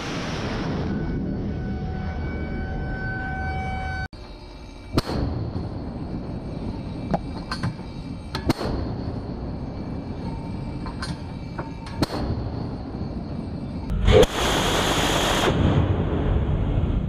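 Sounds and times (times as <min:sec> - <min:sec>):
loud steady rushing noise: 0:04.8 - 0:17.0.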